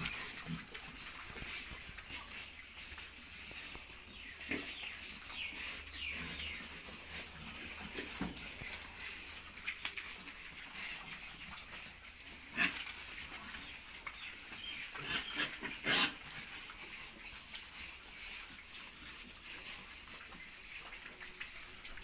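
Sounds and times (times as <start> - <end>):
pigs snuffling and grunting: 0.0 - 22.0.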